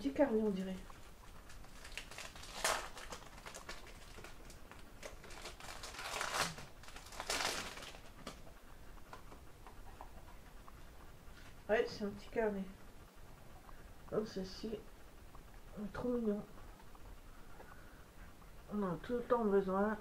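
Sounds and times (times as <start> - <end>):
wrapping rustling and crinkling: 0.4 - 9.4.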